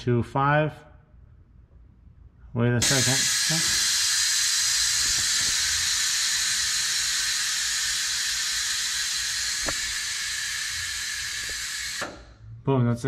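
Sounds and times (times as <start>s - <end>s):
compressed air hissing: 2.8s - 12.4s.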